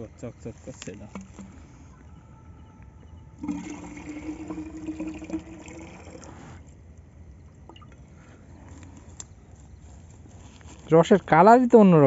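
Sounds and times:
liquid pouring into metal bowl: 3.4 - 6.6.

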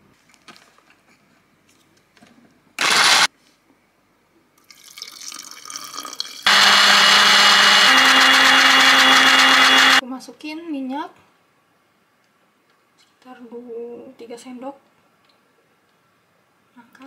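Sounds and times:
blender motor chopping: 2.8 - 3.3, 6.5 - 10.0.

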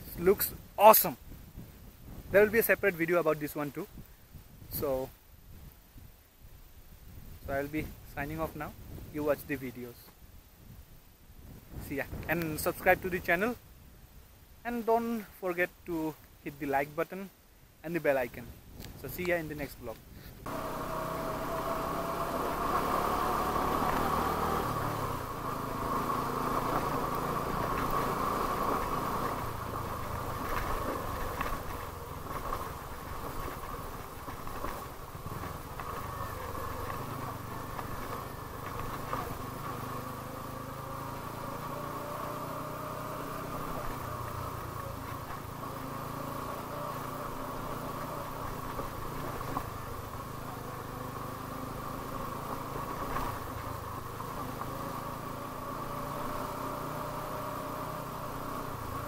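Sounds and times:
motorcycle engine running: 20.4 - 59.0.

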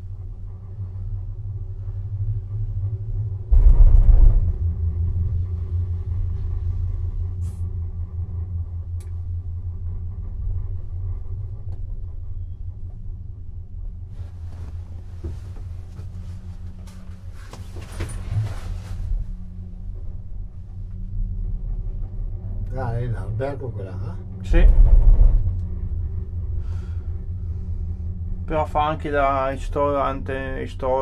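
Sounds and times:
gondola cabin rumbling: 0.0 - 31.0
cabin rolling over tower sheaves: 14.1 - 20.2.

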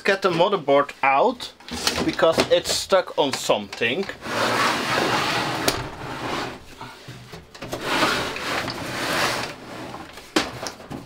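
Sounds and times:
parts scraping inside metal chassis: 4.1 - 10.4.

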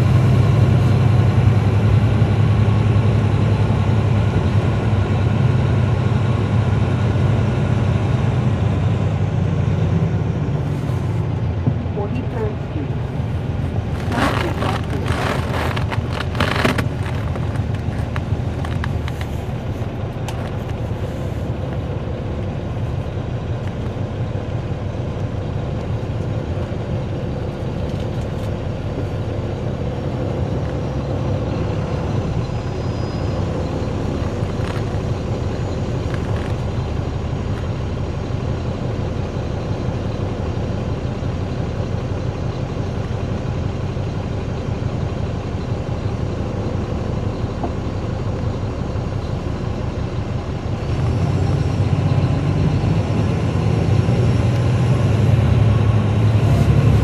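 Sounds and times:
bus diesel engine droning: 0.0 - 57.0
sharp rattles and knocks: 13.9 - 19.4.

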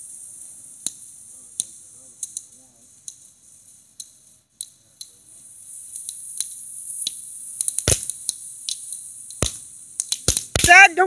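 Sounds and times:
firework hissing: 0.0 - 11.0
ground firework crackling and popping: 0.0 - 11.0.

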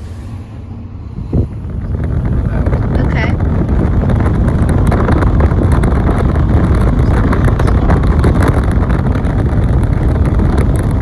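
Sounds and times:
car tyre and road noise: 0.0 - 11.0
wind buffeting microphone: 0.0 - 11.0.

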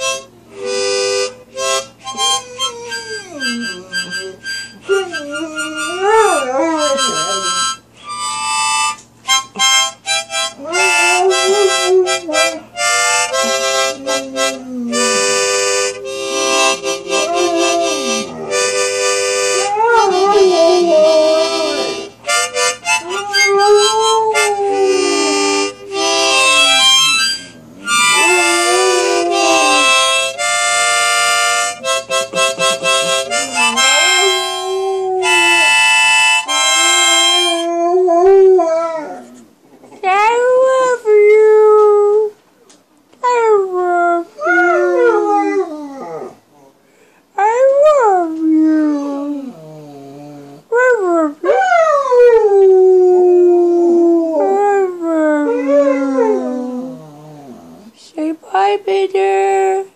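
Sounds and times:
harmonica chords: 0.0 - 38.2
dog howling: 2.2 - 7.6, 10.6 - 12.6, 19.6 - 21.9, 22.9 - 25.4, 27.2 - 30.3, 33.1 - 36.1, 44.2 - 46.4, 47.5 - 57.9.

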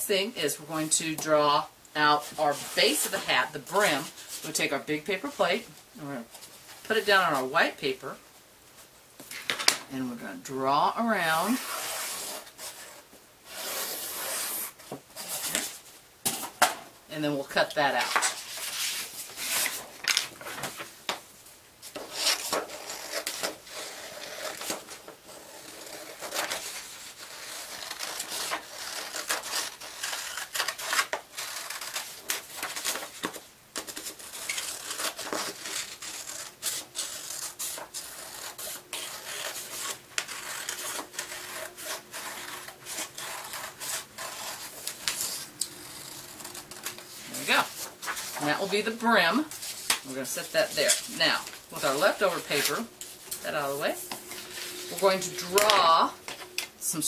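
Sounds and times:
paper rustling: 18.0 - 21.2, 21.8 - 56.8.

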